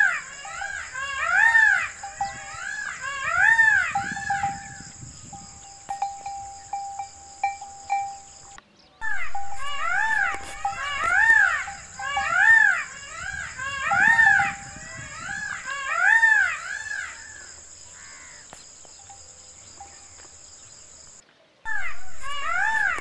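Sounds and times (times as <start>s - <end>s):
peafowl calling: 0.0s - 20.3s, 21.7s - 23.0s
high insect buzz: 0.0s - 23.0s.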